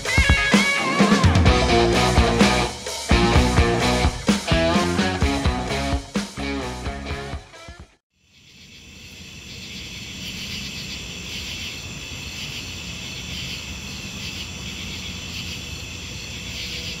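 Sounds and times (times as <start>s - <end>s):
insects chirring: 8.2s - 17.0s.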